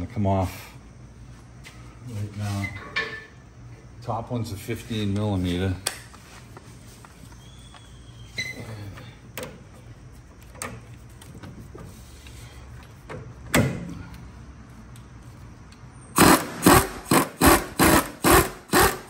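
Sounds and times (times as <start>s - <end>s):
ratchet clicking: 16.2s - 19.0s.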